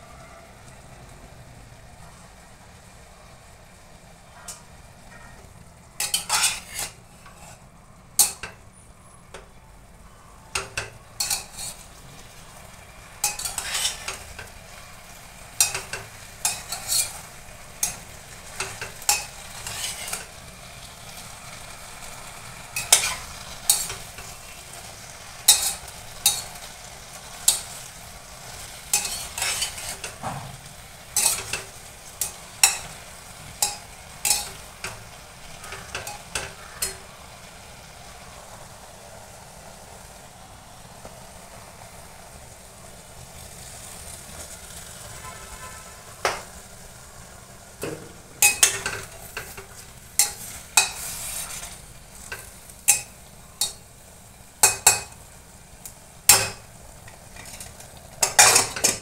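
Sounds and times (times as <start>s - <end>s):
vegetables sizzling: 0.0s - 59.0s
metal spatula scraping metal pot: 6.0s - 7.6s, 10.6s - 12.0s, 13.2s - 14.6s, 15.6s - 20.4s, 22.8s - 24.6s, 25.4s - 26.7s, 27.4s - 37.0s, 47.8s - 53.8s.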